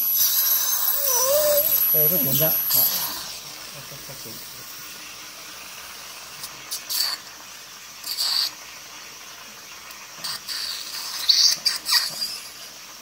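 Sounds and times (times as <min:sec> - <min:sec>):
dental suction sucking water: 0:00.0 - 0:03.4, 0:08.0 - 0:08.6, 0:10.2 - 0:12.6
steady hiss: 0:00.0 - 0:11.2.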